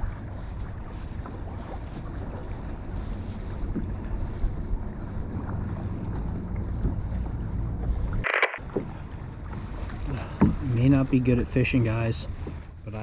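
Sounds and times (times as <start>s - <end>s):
water lapping around kayak: 0.0s - 13.0s
short sharp noise: 8.2s - 8.6s.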